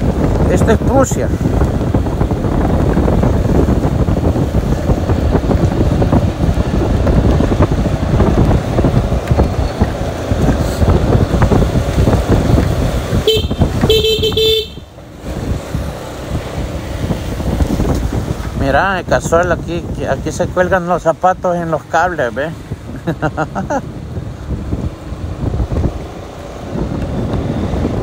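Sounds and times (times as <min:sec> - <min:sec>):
street noise: 0:00.0 - 0:28.0
wind rumbling on microphone: 0:00.0 - 0:28.0
vehicle horn: 0:13.2 - 0:14.9.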